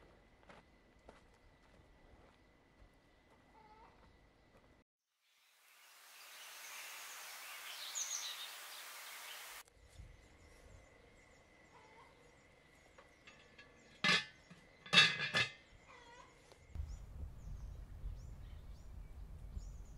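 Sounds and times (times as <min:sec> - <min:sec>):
outdoor hiss: 0:05.2 - 0:09.6
birds chirping: 0:06.2 - 0:09.6, 0:16.8 - 0:19.9
metal cauldron lid clanking: 0:13.3 - 0:15.6.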